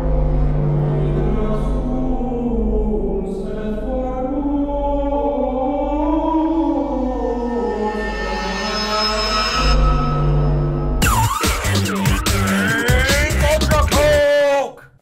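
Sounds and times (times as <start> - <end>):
steady low drone: 0.0 - 14.1
choir-like voices: 0.5 - 9.7.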